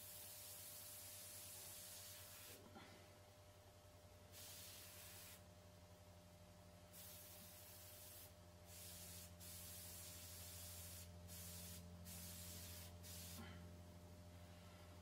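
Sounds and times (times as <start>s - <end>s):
airbrush spraying hiss: 0.0s - 2.6s, 4.3s - 5.4s, 6.9s - 13.5s
low steady hum: 0.1s - 15.0s.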